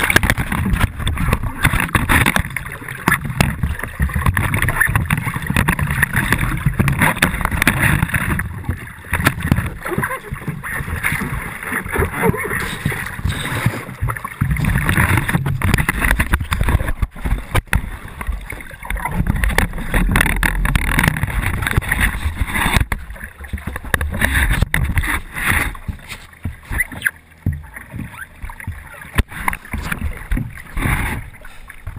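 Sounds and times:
knocks on paddleboard: 0.0 - 31.9
water splashing and sloshing: 0.0 - 31.9.

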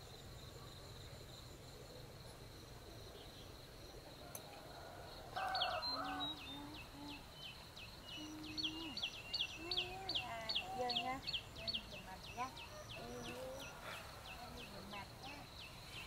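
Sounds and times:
high steady insect drone: 0.0 - 16.0
bird chirping: 4.3 - 16.0.

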